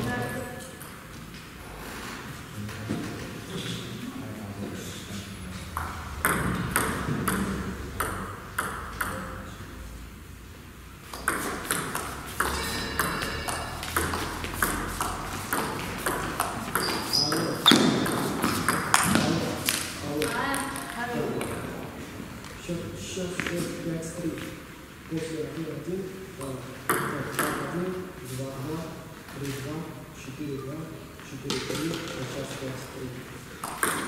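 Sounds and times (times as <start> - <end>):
table tennis ball clicking: 33.6 - 34.0.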